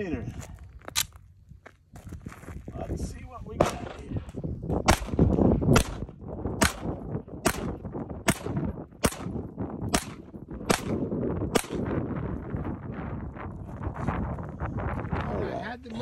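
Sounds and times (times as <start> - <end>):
pistol shots with echo: 3.6 - 4.2, 4.8 - 12.0.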